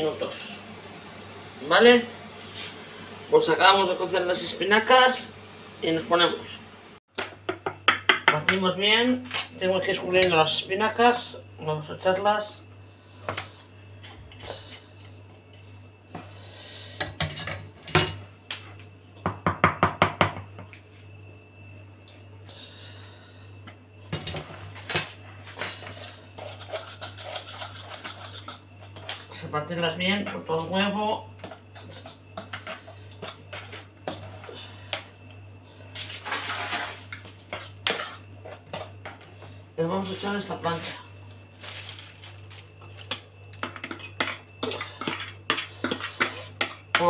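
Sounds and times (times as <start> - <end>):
spoon scraping plastic tub: 25.7 - 29.5, 43.8 - 46.9.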